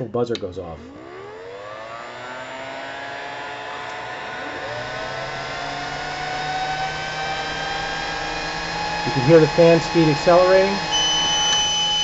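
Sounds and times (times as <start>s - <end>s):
cooling fan whine rising: 0.0s - 12.0s.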